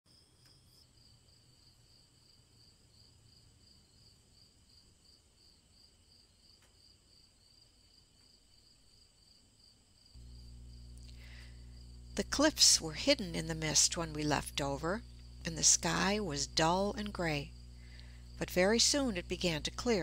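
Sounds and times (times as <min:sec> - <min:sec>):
crickets chirping: 0:00.1 - 0:20.0
low background rumble: 0:10.2 - 0:20.0.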